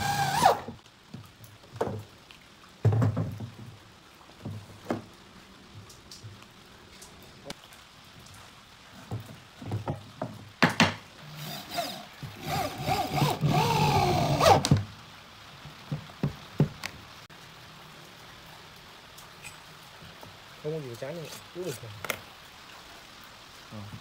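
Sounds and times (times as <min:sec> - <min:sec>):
electric drill boring into wood: 0:00.0 - 0:00.8, 0:11.3 - 0:14.7.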